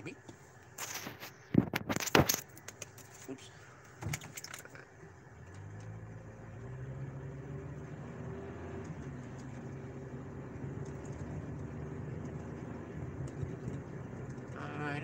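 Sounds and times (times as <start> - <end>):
car engine accelerating: 4.5 - 15.0.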